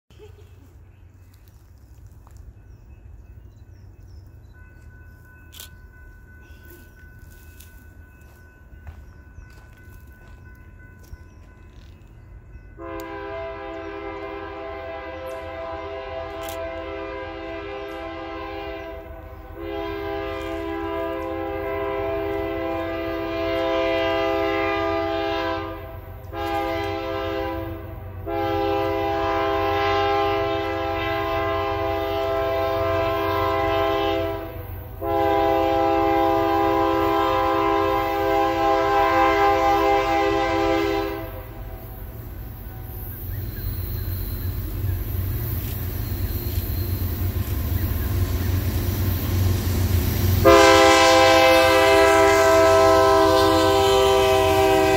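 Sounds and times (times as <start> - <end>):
locomotive air horn blasts: 12.8 - 41.8, 50.4 - 54.9.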